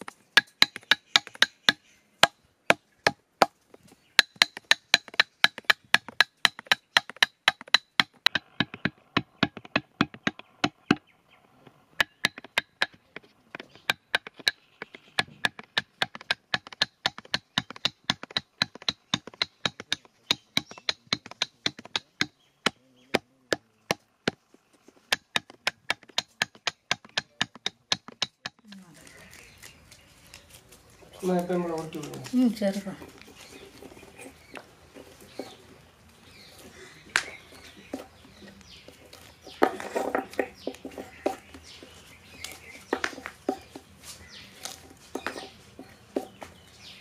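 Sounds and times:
hammer tapping a rod: 0:00.0 - 0:02.4, 0:04.2 - 0:11.0, 0:12.0 - 0:24.4, 0:25.1 - 0:28.8.

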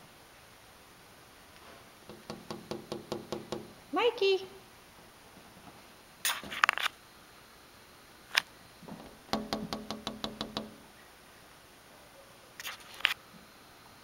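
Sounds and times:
knock: 0:02.1 - 0:03.7, 0:09.0 - 0:10.8.

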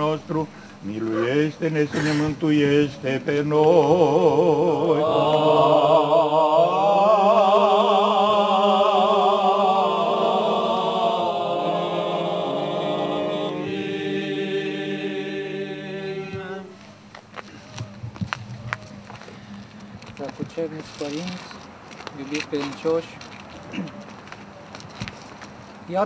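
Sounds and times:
chanters singing a cappella: 0:00.0 - 0:16.8.

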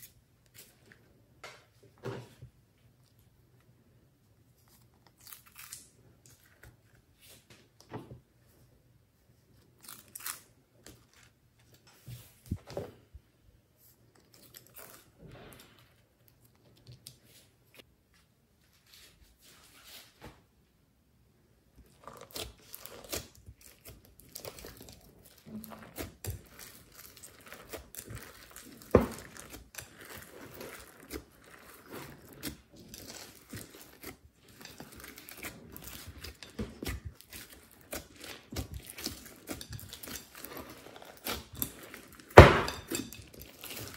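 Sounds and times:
slime squishing and crackling: 0:04.6 - 0:07.4, 0:09.6 - 0:12.5, 0:14.2 - 0:17.2, 0:21.8 - 0:43.9.

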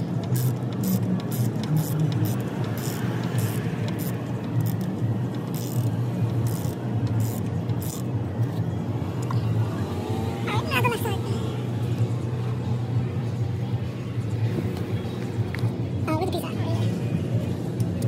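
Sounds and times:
metal ratchet clicking: 0:00.2 - 0:08.1.

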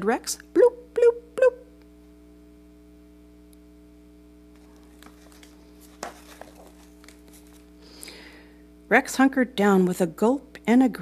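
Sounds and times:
low room hum: 0:00.0 - 0:11.0
page turning: 0:04.5 - 0:07.8.

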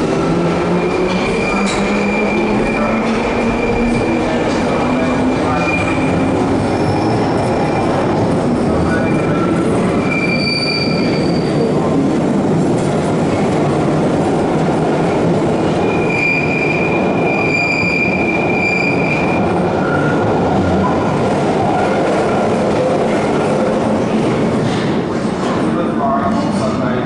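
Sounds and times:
train wheels rumbling on rail: 0:00.0 - 0:27.0
high wheel squeal: 0:08.9 - 0:11.7, 0:15.8 - 0:20.2.

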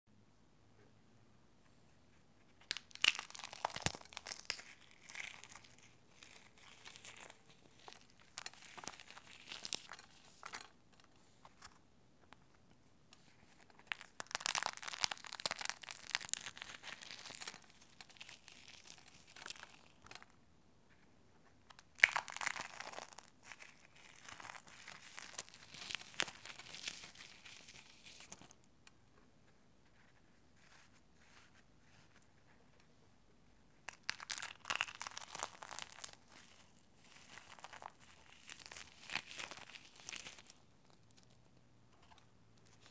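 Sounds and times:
eggshells cracking: 0:02.6 - 0:10.4, 0:13.8 - 0:20.0, 0:21.8 - 0:28.4, 0:33.9 - 0:40.6
dry foam crumbling: 0:02.6 - 0:10.5, 0:13.8 - 0:20.0, 0:33.9 - 0:40.6.

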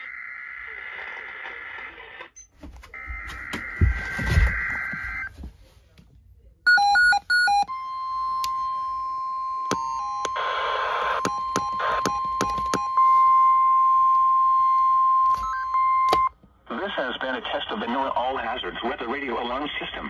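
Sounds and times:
steady alarm tone: 0:02.9 - 0:05.3
weather radio alert beeps: 0:06.7 - 0:16.3.

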